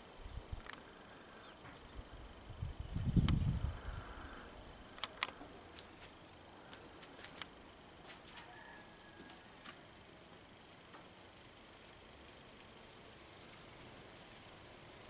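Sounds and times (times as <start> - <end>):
low rumble on microphone: 0.0 - 4.9
sharp clicks and ticks: 5.0 - 5.9.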